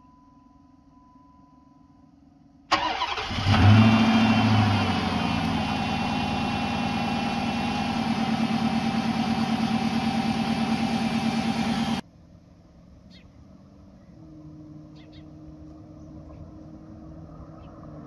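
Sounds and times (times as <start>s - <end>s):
car engine starting and idling: 2.7s - 12.0s.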